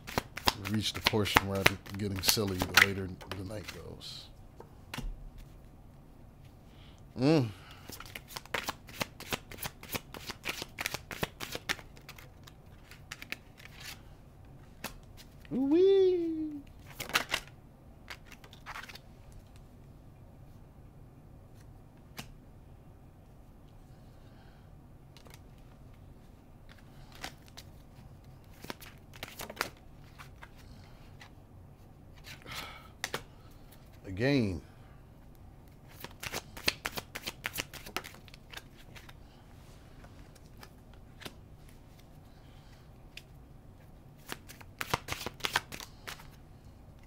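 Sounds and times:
cards being shuffled: 0.0s - 4.0s, 7.9s - 14.0s, 16.5s - 19.6s, 25.2s - 25.7s, 26.6s - 31.3s, 35.7s - 39.2s, 40.0s - 42.2s, 44.2s - 46.4s
faint low room hum: 0.0s - 47.0s.

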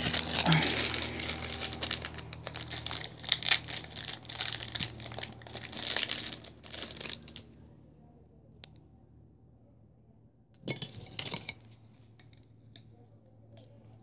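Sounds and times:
plastic packaging crinkling: 0.0s - 7.4s.

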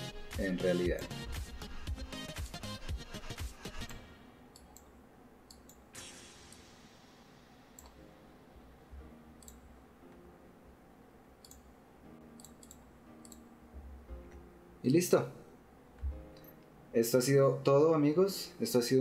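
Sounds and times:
computer mouse clicking: 3.8s - 4.9s, 5.5s - 5.8s, 7.8s - 8.0s, 9.4s - 9.6s, 11.4s - 11.7s, 12.4s - 13.5s.

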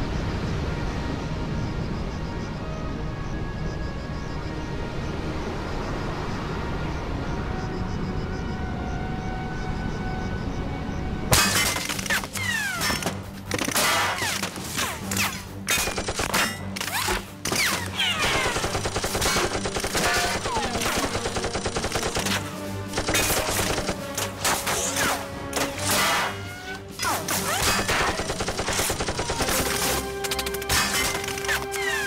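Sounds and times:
background music: 0.0s - 32.0s
automatic gunfire bursts: 18.2s - 22.4s.

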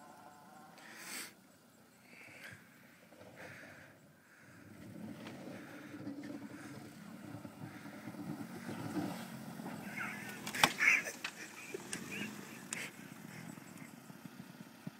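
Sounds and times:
car engine running at low revs: 0.0s - 14.9s
plough blade pushing through snow: 4.4s - 14.9s.

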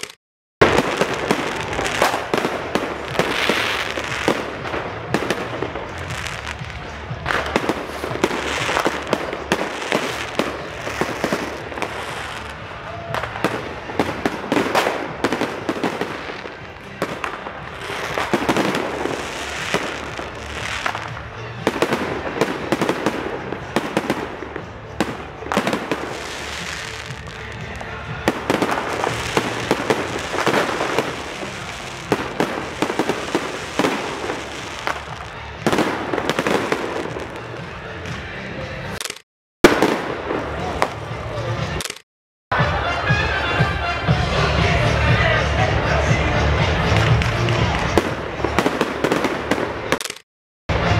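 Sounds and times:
continuous din of explosions: 0.0s - 38.2s
fireworks bangs and crackling: 0.0s - 41.9s, 46.0s - 50.9s.

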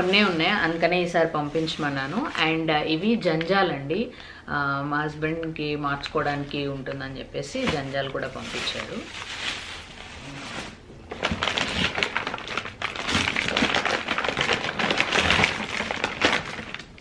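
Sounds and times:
plastic bag crinkling: 7.6s - 17.0s.

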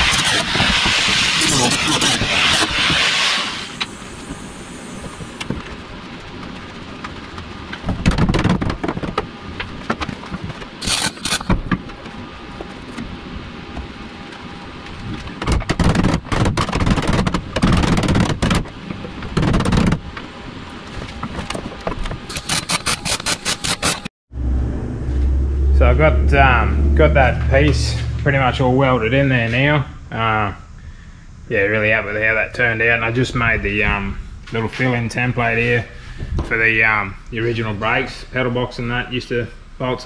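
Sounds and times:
crackling welding arc: 0.0s - 8.5s, 10.8s - 11.6s.

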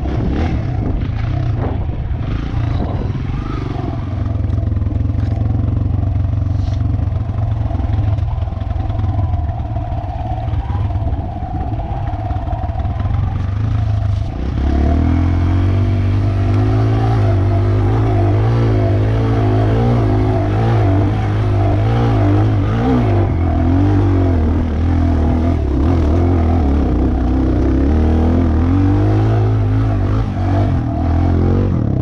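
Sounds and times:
dirt bike engine revving: 0.0s - 32.0s.

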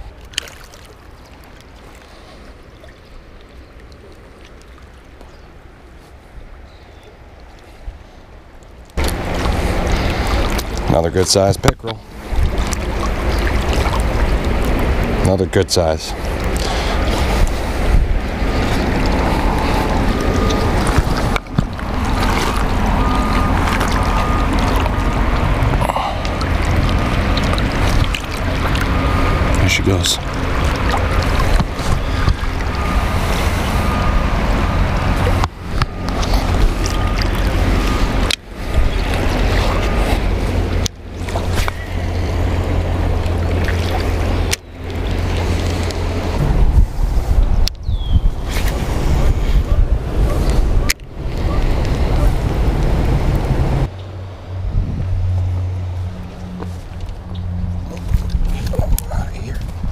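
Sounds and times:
water rushing through dam: 9.0s - 47.4s
wind buffeting microphone: 9.0s - 59.9s.

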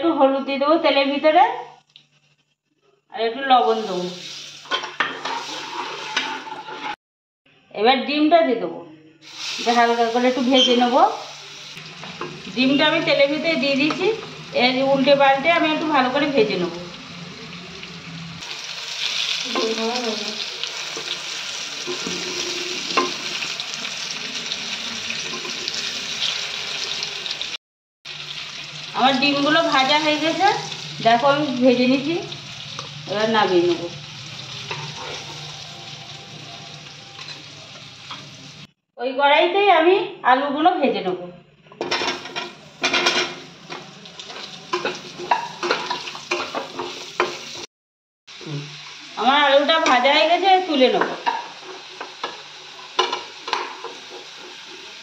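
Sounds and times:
frying sizzle: 3.6s - 7.0s, 9.2s - 38.8s, 41.8s - 47.7s, 48.3s - 55.0s
steel spatula scraping pan: 4.6s - 7.0s, 20.9s - 23.6s, 34.3s - 35.9s
spatula scraping and tapping pan: 4.7s - 7.0s, 21.8s - 23.3s, 41.8s - 47.6s, 51.0s - 54.9s.

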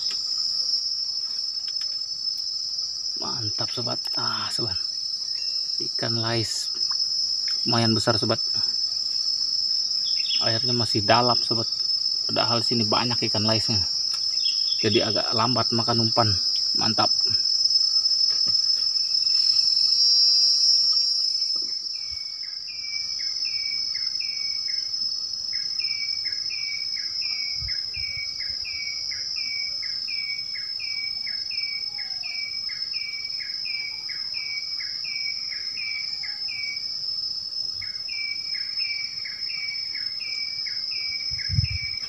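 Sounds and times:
insects droning: 0.0s - 42.0s.

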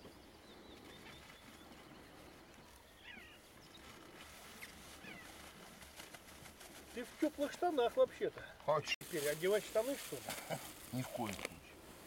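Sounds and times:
faint bird calls: 0.0s - 5.6s.

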